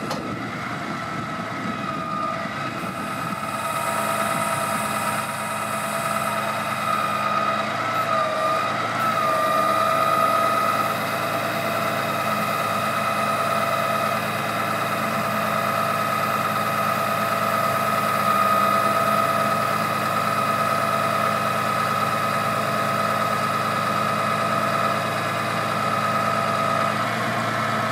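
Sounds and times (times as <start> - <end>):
hydraulic whine: 0.0 - 16.0
diesel engine idling: 0.0 - 27.9.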